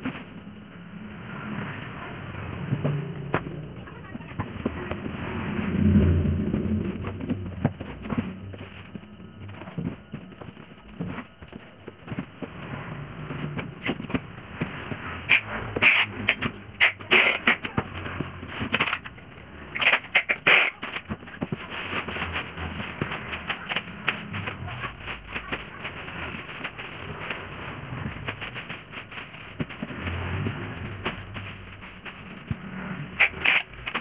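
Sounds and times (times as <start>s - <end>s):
cardboard being handled: 6.3s - 34.0s
plastic bag crinkling: 18.4s - 34.0s.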